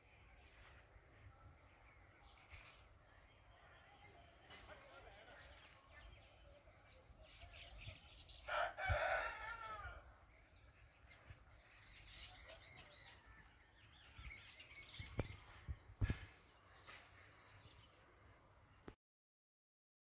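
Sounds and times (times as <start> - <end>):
small birds chirping: 0.0 - 19.0
rooster crowing: 8.5 - 10.1.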